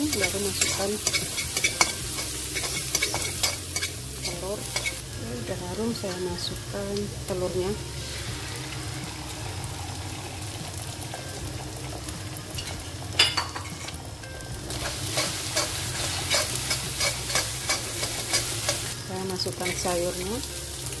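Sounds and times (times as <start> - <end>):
metal spatula scraping a wok: 0.0 - 5.0, 14.7 - 19.0
egg sizzling in hot oil: 0.0 - 21.0.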